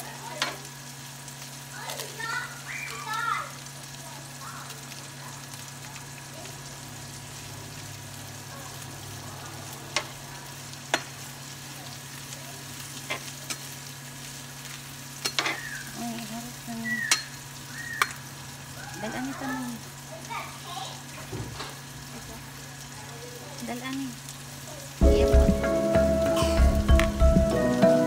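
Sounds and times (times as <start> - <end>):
vegetables sizzling in a frying pan: 0.0 - 28.0
spatula clicking against pan: 18.0 - 18.2.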